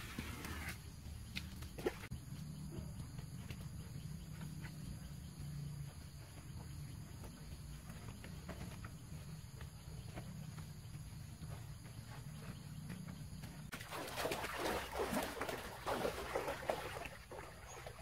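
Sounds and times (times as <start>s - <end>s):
hands scraping soil: 0.0s - 1.5s.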